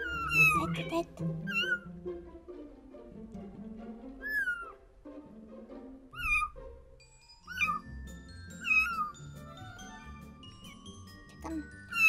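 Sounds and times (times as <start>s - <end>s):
kitten mewing: 0.0s - 1.9s, 6.2s - 6.6s, 7.5s - 7.9s, 8.6s - 9.2s.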